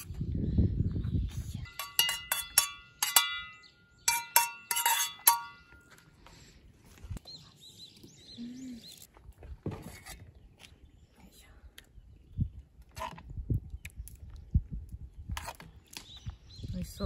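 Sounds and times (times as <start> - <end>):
metal spoon clinking on steel plates: 1.7 - 5.8.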